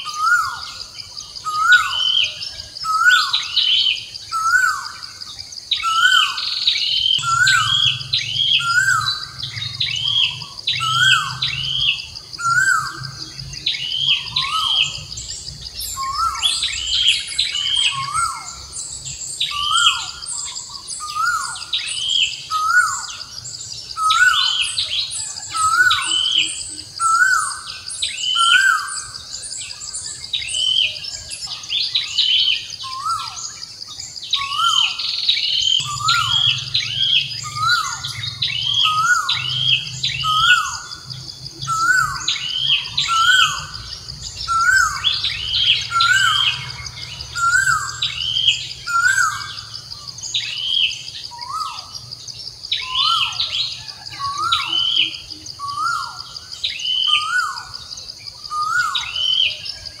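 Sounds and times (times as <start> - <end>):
high-pitched animal calls: 5.8 - 18.7, 24.0 - 29.1, 34.4 - 52.0.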